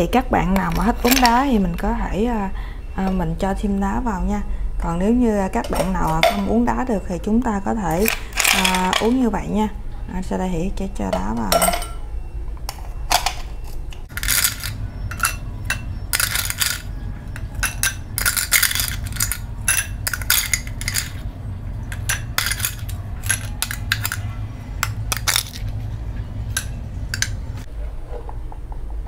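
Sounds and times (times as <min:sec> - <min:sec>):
steady low hum: 0:00.0 - 0:29.0
ice cubes clinking in glass: 0:08.0 - 0:09.2, 0:14.1 - 0:21.2, 0:21.9 - 0:24.2, 0:24.8 - 0:25.8.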